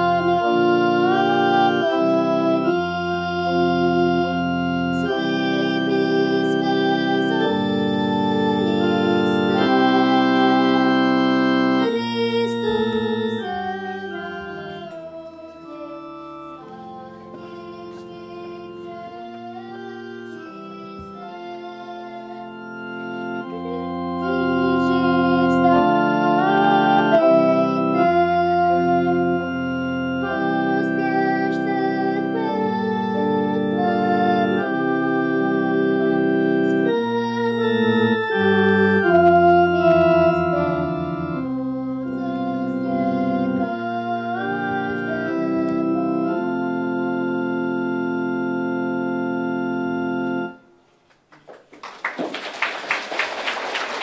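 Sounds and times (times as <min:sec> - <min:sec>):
organ music: 0:00.0 - 0:54.0
audience applauding: 0:51.0 - 0:54.0.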